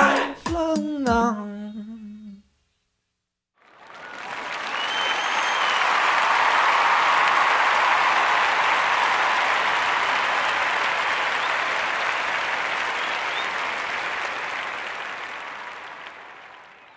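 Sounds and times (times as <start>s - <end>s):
audience applause: 3.6s - 16.9s.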